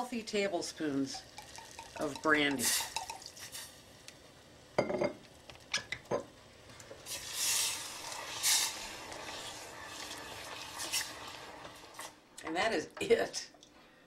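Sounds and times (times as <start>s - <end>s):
spoon knocking metal pan: 1.4s - 3.2s.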